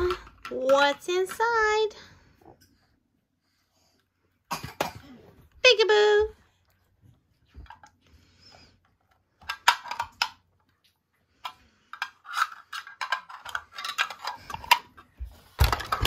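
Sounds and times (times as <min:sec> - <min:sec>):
plastic toy clicking and rattling: 0:09.1 - 0:10.4, 0:11.4 - 0:15.0.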